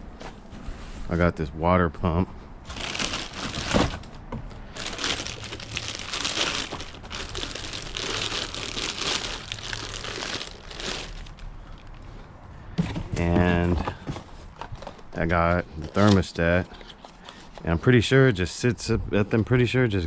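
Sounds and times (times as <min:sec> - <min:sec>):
plastic bag crinkling: 0:02.7 - 0:12.0.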